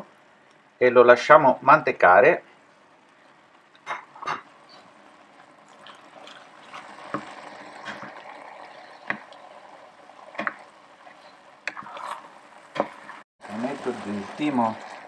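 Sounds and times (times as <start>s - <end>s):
wooden spoon stirring risotto: 4.6s - 13.2s.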